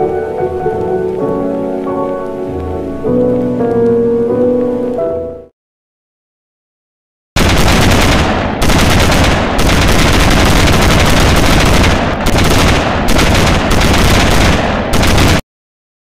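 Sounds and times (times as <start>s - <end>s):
automatic gunfire: 7.4s - 15.4s.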